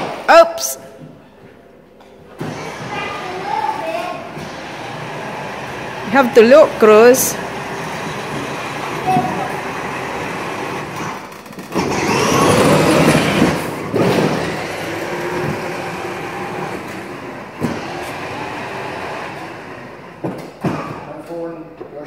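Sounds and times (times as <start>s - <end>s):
plastic wheels rolling on concrete: 2.4s - 20.0s
electric toy car motors whirring: 2.4s - 20.3s.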